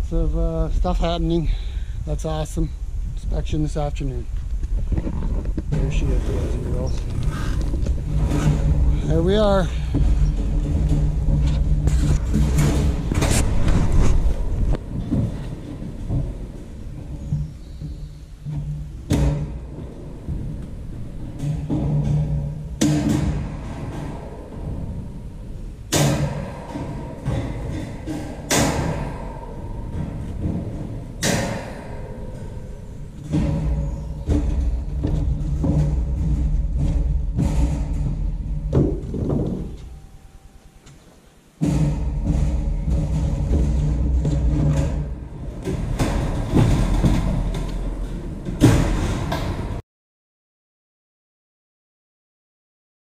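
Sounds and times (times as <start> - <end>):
thuds: 4.4 - 40.3, 41.6 - 49.8.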